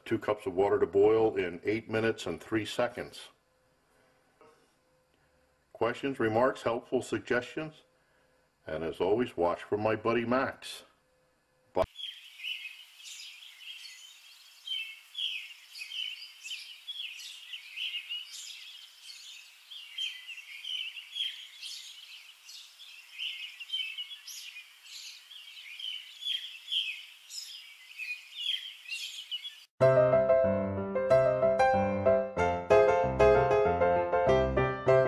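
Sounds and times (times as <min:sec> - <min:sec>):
many birds chirping: 0:11.8 - 0:29.7.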